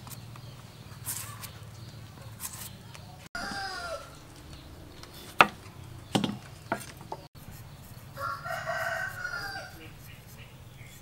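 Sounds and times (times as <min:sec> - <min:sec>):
rooster crowing: 0:03.4 - 0:04.3, 0:08.1 - 0:10.1
sharp knocks of food preparation: 0:05.3 - 0:07.3.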